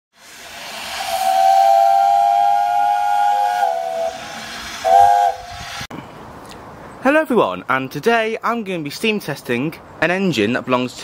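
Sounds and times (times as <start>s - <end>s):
steam hissing: 0.2s - 5.9s
steam whistle blowing: 0.2s - 5.9s.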